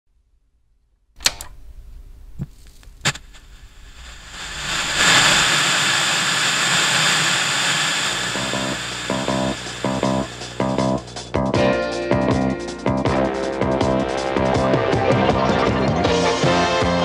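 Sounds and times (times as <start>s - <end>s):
sharp clicks: 1.2s - 1.6s
static hiss: 1.3s - 11.3s
music with repeating pattern: 10.0s - 17.0s.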